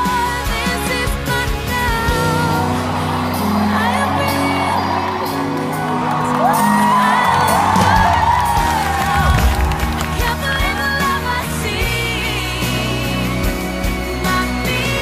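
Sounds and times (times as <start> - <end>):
live concert music chords: 0.0 - 15.0
crowd whooping: 2.2 - 11.2.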